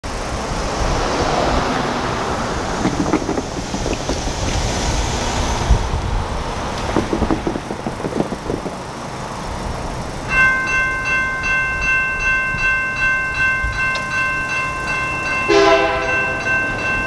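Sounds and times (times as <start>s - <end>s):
cars driving by: 0.0s - 17.0s
wind buffeting microphone: 0.2s - 8.9s.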